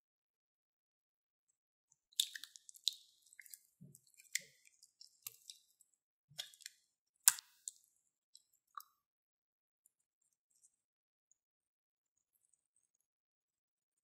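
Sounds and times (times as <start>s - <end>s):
slime squishing and popping: 2.2s - 5.6s.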